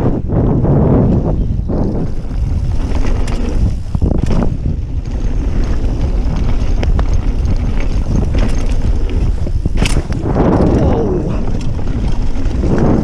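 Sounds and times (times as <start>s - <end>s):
bike clicks and rattles: 0.0s - 13.0s
bike tyres rumbling on dirt: 0.0s - 13.0s
wind buffeting microphone: 0.0s - 13.0s.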